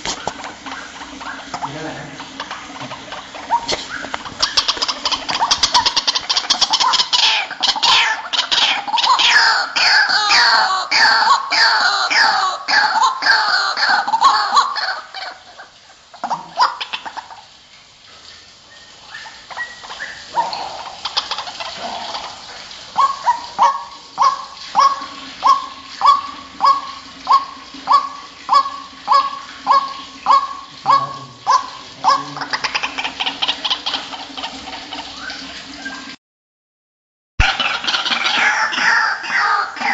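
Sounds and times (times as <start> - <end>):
waterhens calling: 0.0 - 36.2, 37.4 - 39.9.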